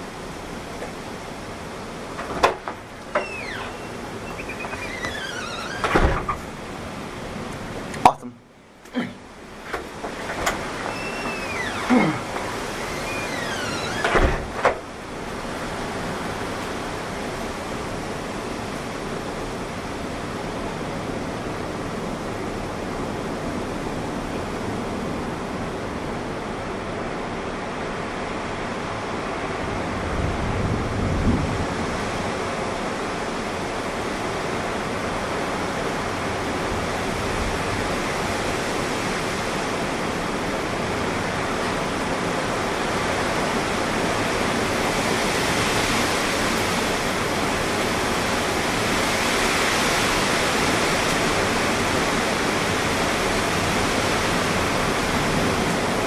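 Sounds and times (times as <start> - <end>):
wind and rain rushing: 0.0 - 56.0
low thunder rumble: 30.0 - 31.8.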